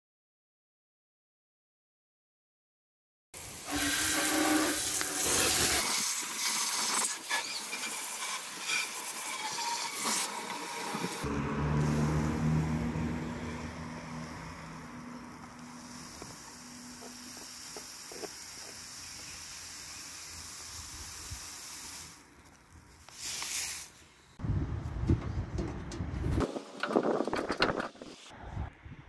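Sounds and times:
hose nozzle spraying water: 3.4 - 12.6, 13.4 - 24.0.

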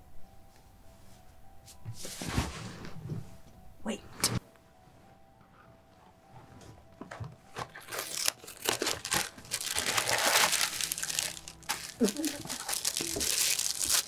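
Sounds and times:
plastic snack bag crinkling: 7.6 - 14.0.

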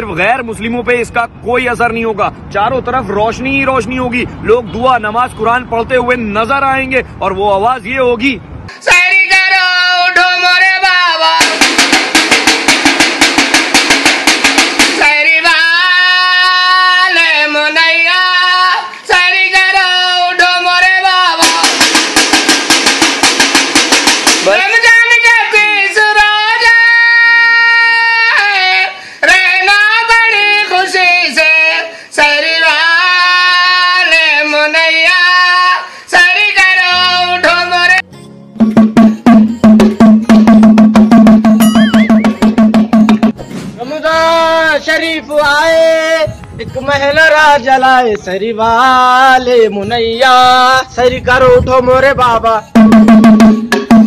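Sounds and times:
man singing a long call: 8.7 - 11.7, 14.9 - 21.9, 24.4 - 38.0, 43.8 - 53.6
hand drum beaten with a stick: 11.4 - 15.1, 21.4 - 24.5, 38.6 - 43.4, 52.8 - 54.0.

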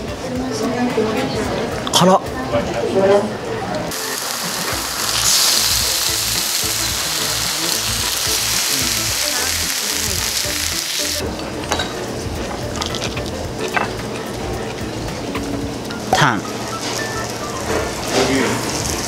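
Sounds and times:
meat sizzling on a grill plate: 3.9 - 11.2, 16.6 - 19.0.

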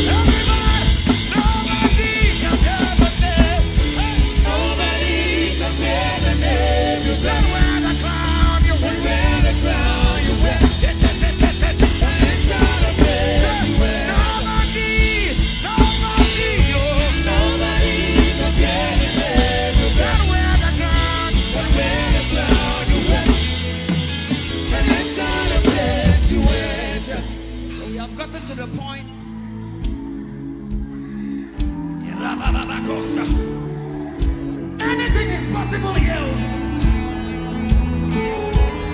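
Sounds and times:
voices singing along: 0.0 - 27.7
drum and cymbal hits: 0.0 - 28.6
heavy bass line: 0.0 - 38.9
live band music: 0.0 - 38.9.

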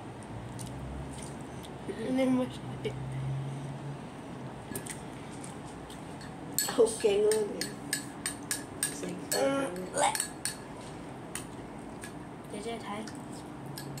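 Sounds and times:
lip smacks while eating: 0.2 - 1.8.

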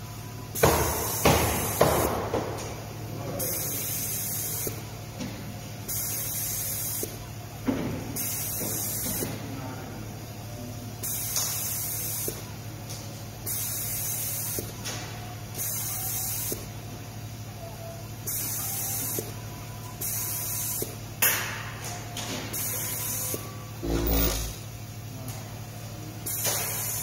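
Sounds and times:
pneumatic nozzle hissing: 5.9 - 7.2, 8.2 - 9.2, 13.5 - 14.7, 22.5 - 24.7
low machine hum: 16.1 - 26.1.

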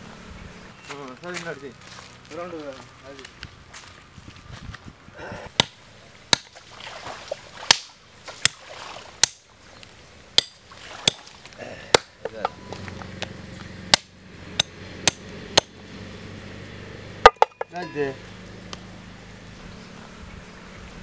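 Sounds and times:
sharp blows on a solid block: 13.9 - 15.7.

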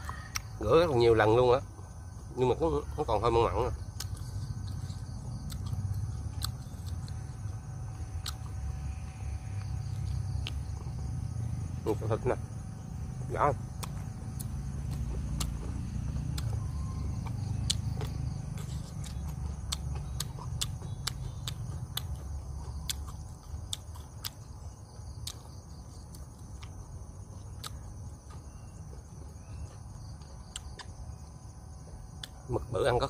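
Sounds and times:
crickets trilling: 0.0 - 33.0
person chewing close up: 3.8 - 8.8, 13.7 - 31.4.

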